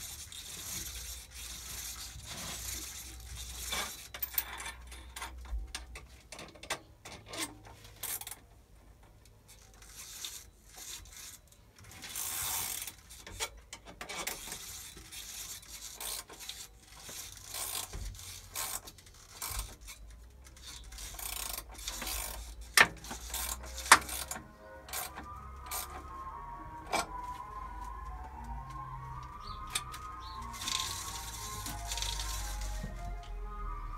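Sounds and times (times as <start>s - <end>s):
rubbing and scraping on metal: 0.0s - 5.1s, 9.5s - 27.2s.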